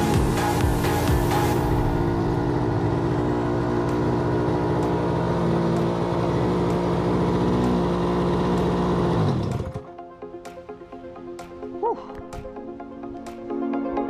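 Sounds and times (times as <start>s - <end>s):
two-stroke mini bike engine: 0.0s - 9.9s.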